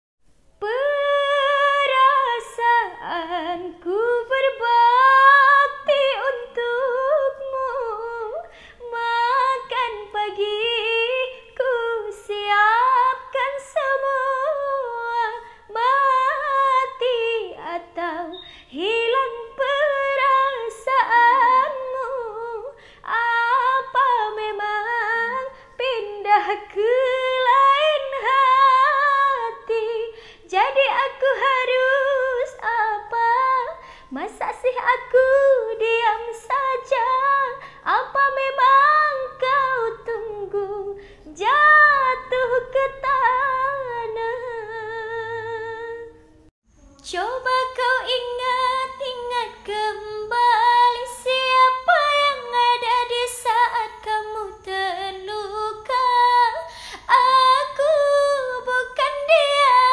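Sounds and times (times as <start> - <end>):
woman singing unaccompanied: 0.6 - 59.9.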